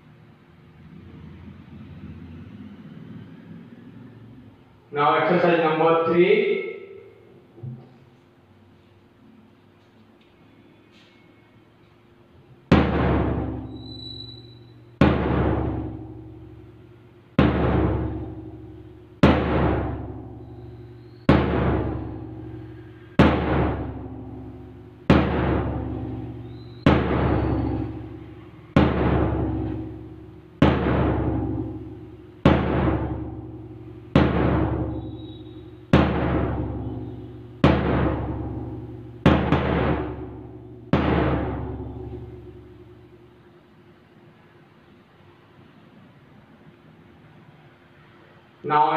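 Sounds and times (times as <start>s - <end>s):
large drum beating: 12.6s - 43.4s.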